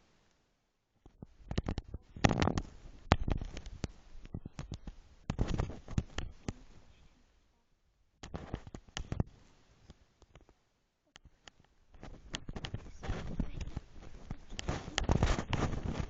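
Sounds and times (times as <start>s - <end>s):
cloth rustling over microphone: 1.1s - 7.0s, 8.2s - 10.6s, 11.8s - 16.0s.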